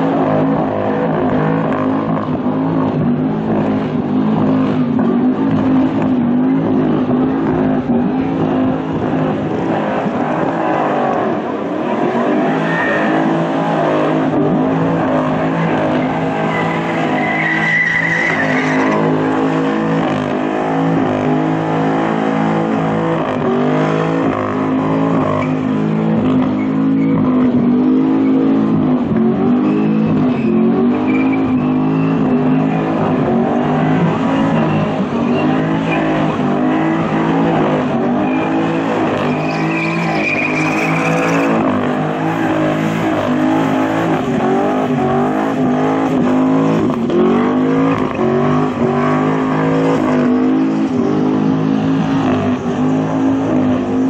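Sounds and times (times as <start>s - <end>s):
car engine at high revs: 0.0s - 54.0s
tyre squeal: 12.2s - 13.9s, 15.2s - 20.2s, 26.3s - 27.5s, 29.4s - 37.3s, 38.0s - 46.6s.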